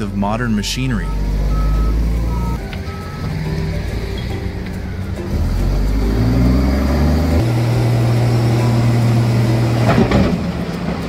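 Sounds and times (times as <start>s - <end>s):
heavy vehicle engine revving: 0.0s - 11.0s
clatter and hiss: 8.2s - 11.0s.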